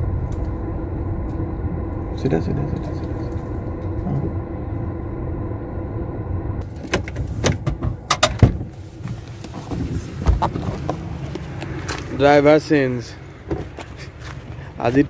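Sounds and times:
car engine and road hum: 0.0 - 15.0
sharp clicks and knocks: 6.7 - 8.7
car door thump: 6.8 - 10.9.

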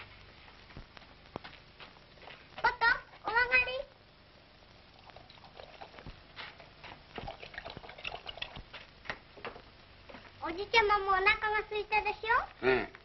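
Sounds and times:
old film soundtrack hiss: 0.0 - 13.0
dog eating from a bowl: 5.0 - 8.7.

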